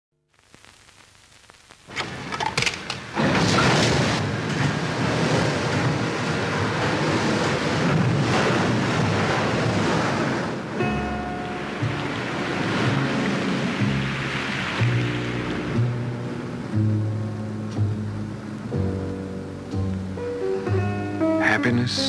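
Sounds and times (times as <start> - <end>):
loud rushing noise: 11.7 - 16.6.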